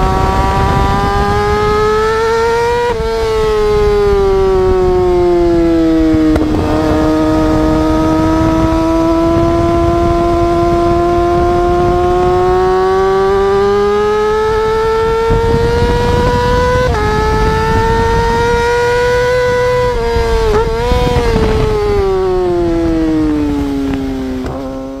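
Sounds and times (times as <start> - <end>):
motorcycle engine revving: 0.0 - 25.0
wind and road noise: 0.0 - 25.0.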